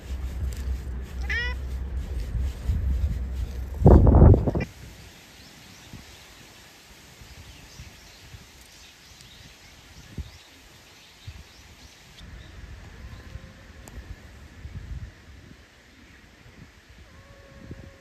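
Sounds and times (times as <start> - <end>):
cat meow: 1.2 - 1.6.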